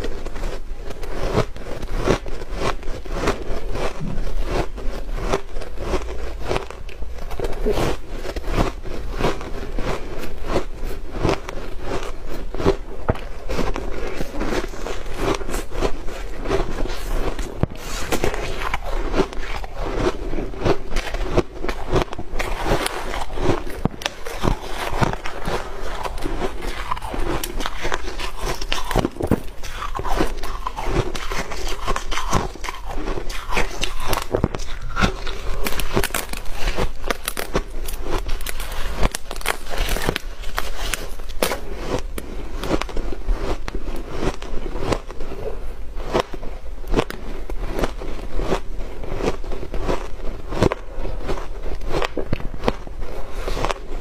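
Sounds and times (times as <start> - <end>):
ice crunching: 1.2 - 54.0.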